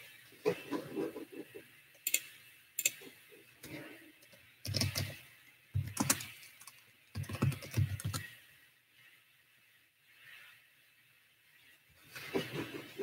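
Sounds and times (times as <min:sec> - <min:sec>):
computer keyboard typing: 0:02.0 - 0:02.2, 0:02.8 - 0:03.0, 0:04.6 - 0:05.2, 0:05.8 - 0:08.3.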